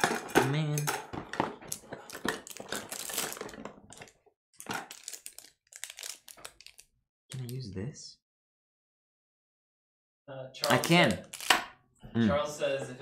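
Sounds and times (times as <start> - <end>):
hands rummaging through a box: 0.0 - 6.8
small hard items clattering: 0.0 - 6.8.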